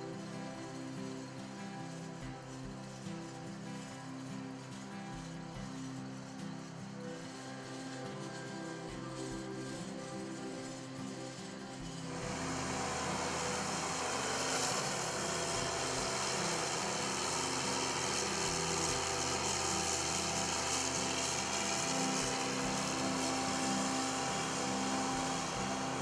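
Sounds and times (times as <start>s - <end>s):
diesel engine running: 11.2s - 26.0s.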